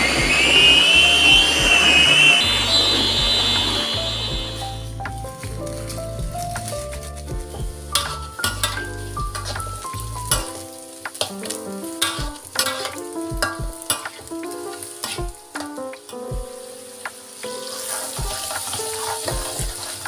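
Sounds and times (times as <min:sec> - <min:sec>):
food sizzling in oil: 0:00.0 - 0:20.0
melodic background music: 0:00.0 - 0:20.0
metal spatula scraping a wok: 0:07.9 - 0:09.7, 0:12.0 - 0:13.0, 0:17.7 - 0:20.0.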